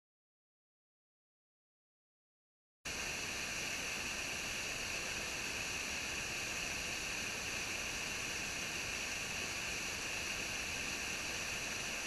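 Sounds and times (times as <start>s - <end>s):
waterfall rushing over rocks: 2.9s - 12.0s.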